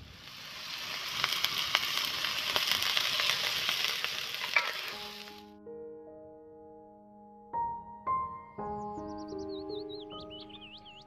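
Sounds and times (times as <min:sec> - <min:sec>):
crackles and pops: 0:00.0 - 0:05.5
vegetables sizzling in a pan: 0:00.0 - 0:05.5.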